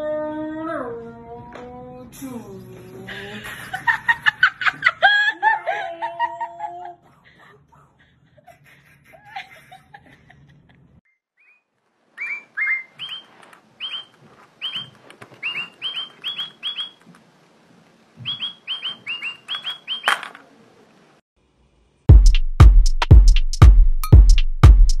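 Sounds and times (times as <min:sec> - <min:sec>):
whistled bird chirps: 0:11.1 - 0:17.0, 0:18.2 - 0:20.2
sharp bird call: 0:11.4 - 0:17.0, 0:18.2 - 0:20.3.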